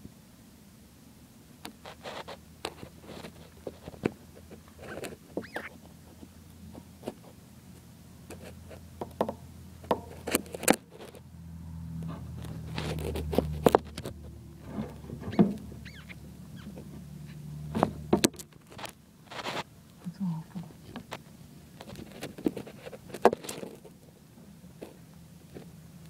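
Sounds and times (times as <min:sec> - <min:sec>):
low hum: 0:11.1 - 0:19.0.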